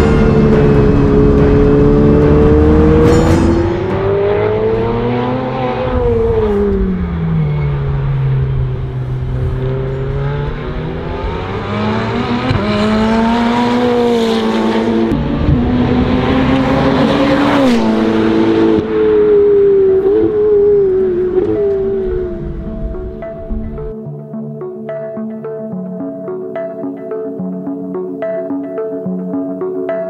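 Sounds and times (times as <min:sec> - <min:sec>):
race car engine at speed: 0:00.0 - 0:23.9.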